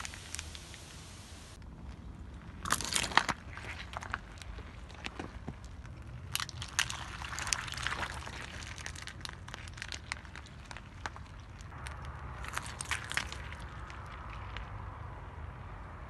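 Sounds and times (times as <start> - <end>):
plastic crackling under tyre: 0.0 - 15.3
low steady rumble: 0.0 - 16.0.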